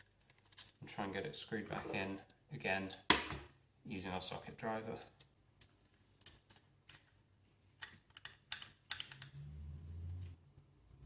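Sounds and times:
metallic clicks and taps: 0:07.8 - 0:09.3.

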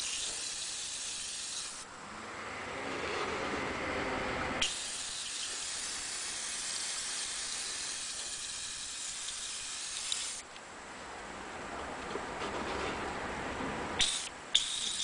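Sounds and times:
spray paint hissing: 0:00.0 - 0:01.9, 0:04.6 - 0:10.4, 0:14.0 - 0:15.0.

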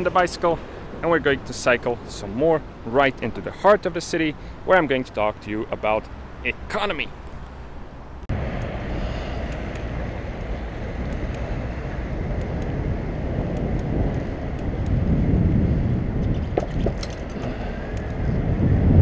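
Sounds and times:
city traffic: 0:00.0 - 0:19.0
wind rushing over microphone: 0:08.3 - 0:19.0.

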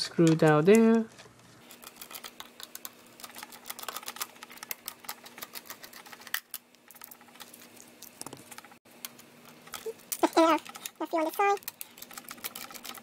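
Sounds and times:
screwdriver turning tiny screws: 0:01.7 - 0:06.6.

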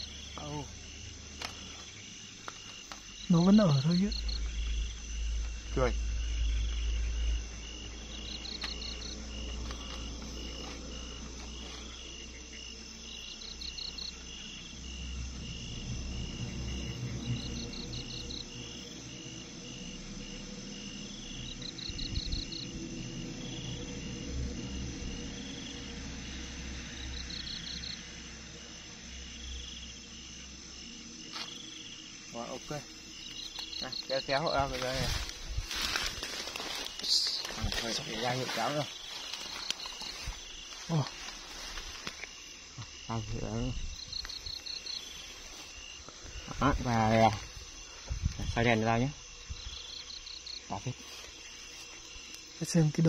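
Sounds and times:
crickets chirping: 0:00.0 - 0:53.0
insect trilling: 0:00.0 - 0:53.0
rustling and handling noise: 0:34.5 - 0:42.4.

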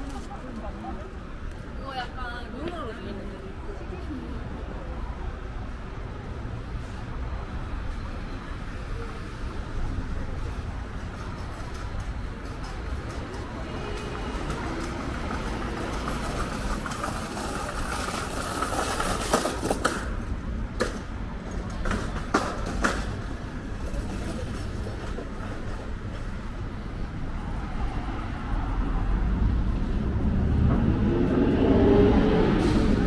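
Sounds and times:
low traffic rumble: 0:00.0 - 0:33.0
vehicle passing: 0:26.5 - 0:33.0.

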